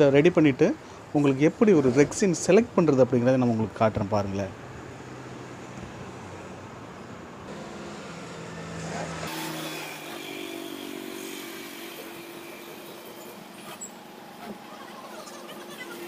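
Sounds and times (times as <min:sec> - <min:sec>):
vehicle engine hum: 0:04.6 - 0:11.1.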